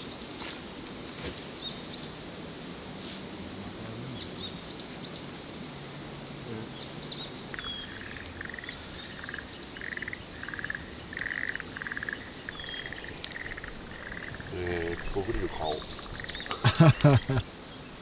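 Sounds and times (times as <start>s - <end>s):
wood fire crackling: 0.0s - 17.4s
frogs trilling: 6.7s - 17.5s
high bird chirps: 7.1s - 16.6s.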